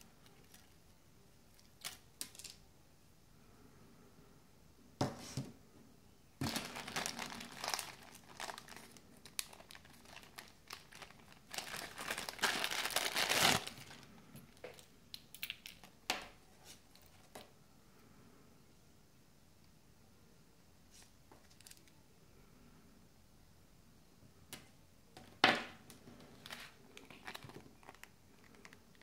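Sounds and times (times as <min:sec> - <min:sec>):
plastic bag crinkling: 0:06.4 - 0:16.0, 0:26.3 - 0:29.0.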